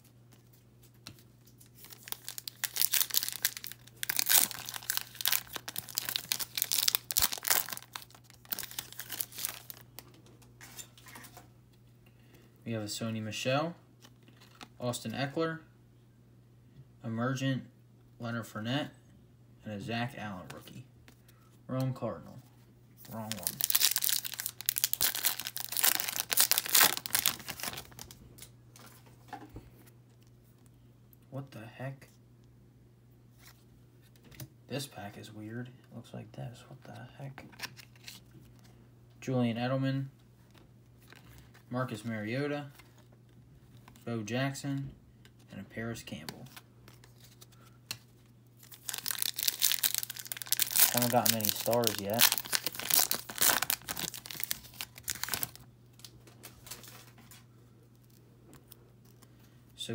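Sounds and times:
wrapper tearing and crinkling: 0:01.6 - 0:10.0, 0:23.0 - 0:28.2, 0:48.6 - 0:57.1.

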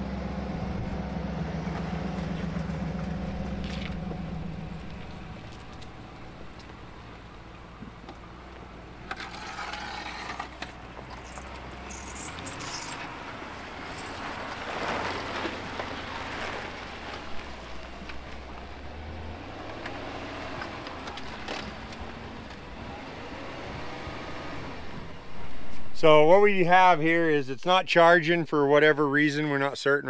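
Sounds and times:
vehicle engine humming: 0:00.0 - 0:29.6.

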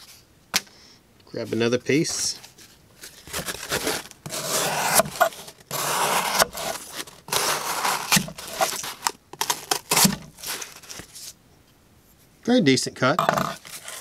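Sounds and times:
knife cutting cardboard: 0:03.2 - 0:11.3, 0:13.4 - 0:14.0.

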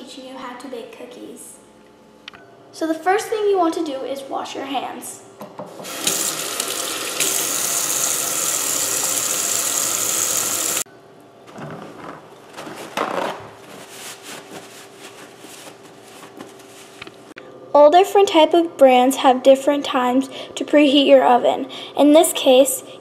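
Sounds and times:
tap running into steel sink: 0:05.8 - 0:08.2
hands washing under water: 0:05.8 - 0:10.8
hands rubbing on towel: 0:13.6 - 0:17.0.

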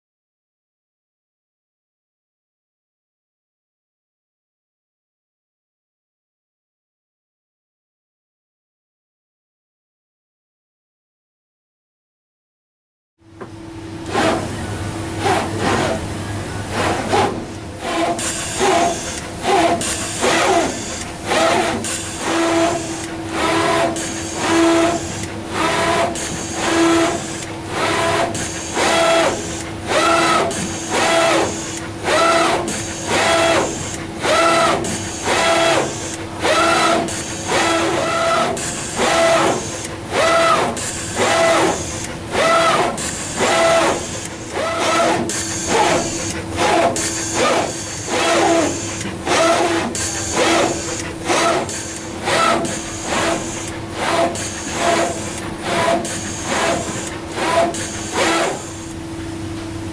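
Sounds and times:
machine steady hum: 0:13.2 - 0:59.9
gantry motors whining: 0:13.8 - 0:59.9.

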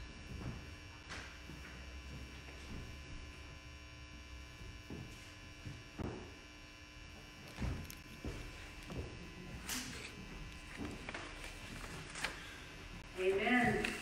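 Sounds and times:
electrical hum: 0:00.0 - 0:14.0.

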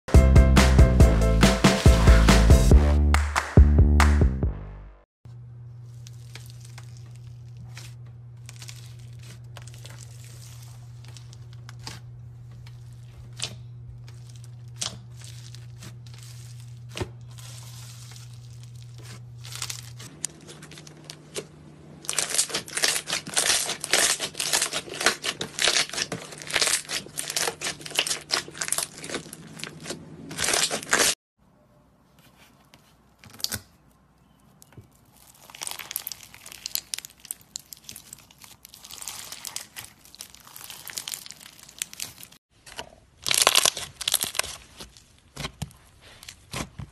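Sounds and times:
low steady hum: 0:05.3 - 0:30.6
slime crackling and popping: 0:22.0 - 0:31.1, 0:35.0 - 0:42.4, 0:43.2 - 0:45.3.

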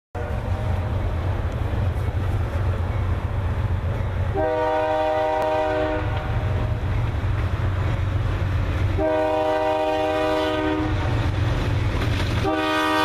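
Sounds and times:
locomotive air horn: 0:00.2 - 0:01.1, 0:04.3 - 0:06.8, 0:09.0 - 0:11.3, 0:12.4 - 0:13.0
low train rumble: 0:00.2 - 0:13.0.

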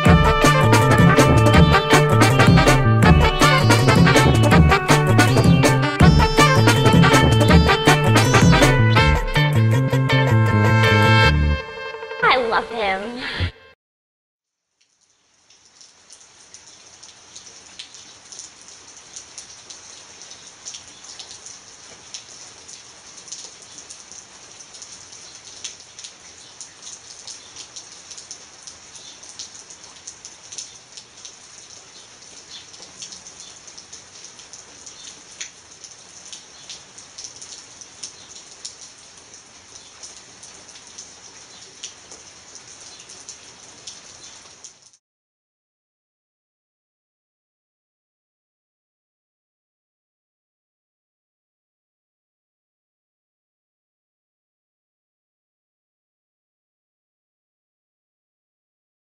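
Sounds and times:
rain on wet pavement: 0:00.0 - 0:08.8, 0:14.7 - 0:45.0.

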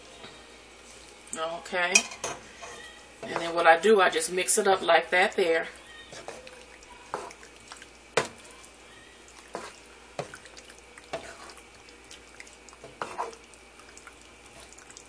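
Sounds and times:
spoon stirring pasta in sauce: 0:00.8 - 0:15.0
spoon knocking on pan: 0:08.2 - 0:08.4.

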